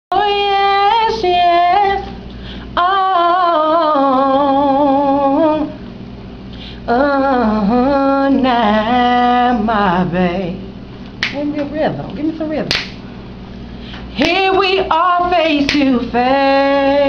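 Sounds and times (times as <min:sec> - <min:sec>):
woman singing: 0:00.1 - 0:02.2, 0:02.8 - 0:05.8, 0:06.9 - 0:10.7, 0:14.1 - 0:17.0.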